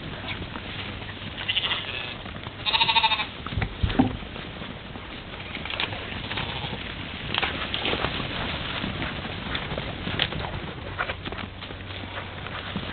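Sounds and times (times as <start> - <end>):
mouflon bleating: 1.4 - 3.3, 6.2 - 6.8.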